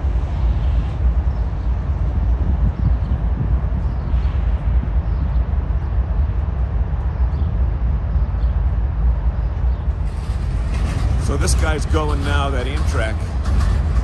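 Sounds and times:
freight train rumbling past: 0:00.0 - 0:14.0.

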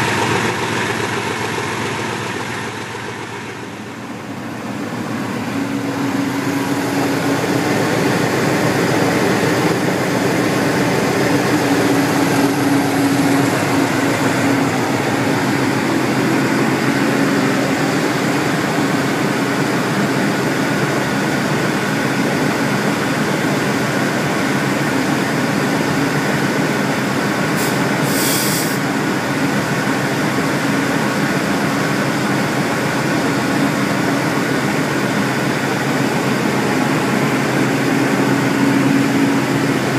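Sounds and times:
diesel locomotive engine running: 0:00.0 - 0:39.9
short hiss: 0:27.6 - 0:28.8.

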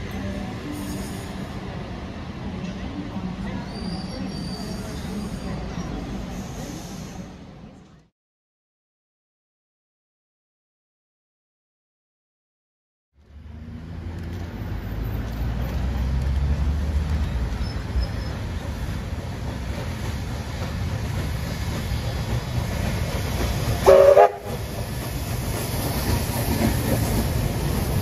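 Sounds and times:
train running past: 0:00.0 - 0:08.1, 0:13.3 - 0:28.0
train horn blast: 0:23.8 - 0:24.6.

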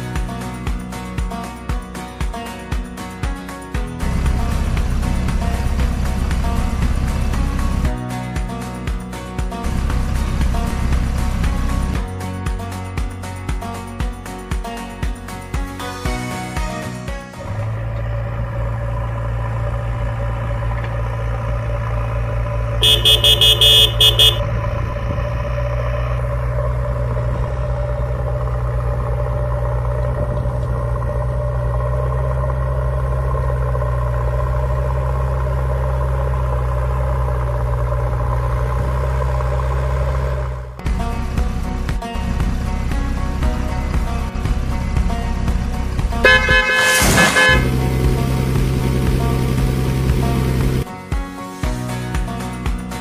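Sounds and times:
truck engine idling: 0:03.9 - 0:07.9, 0:09.6 - 0:12.0, 0:17.4 - 0:50.8
horn toots: 0:22.8 - 0:24.6, 0:46.1 - 0:48.0.

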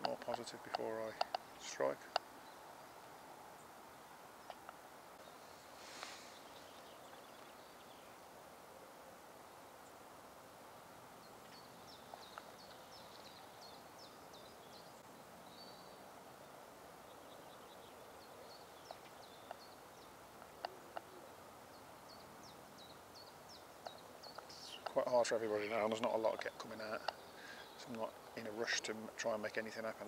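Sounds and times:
light clicks: 0:00.0 - 0:01.4
small birds chirping: 0:00.0 - 0:30.0.

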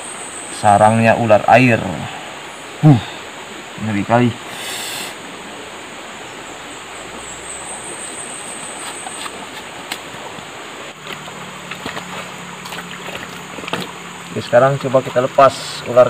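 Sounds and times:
stream water running: 0:00.0 - 0:16.0.

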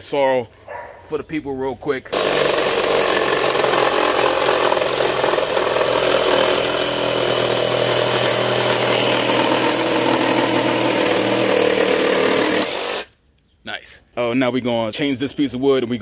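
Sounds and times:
reciprocating saw cutting wood: 0:02.1 - 0:13.1.

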